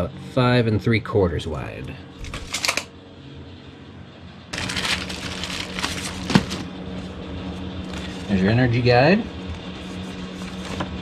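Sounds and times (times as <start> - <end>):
steady low hum: 0.0 - 11.0
paper crackling and rustling: 4.6 - 7.1, 9.5 - 11.0.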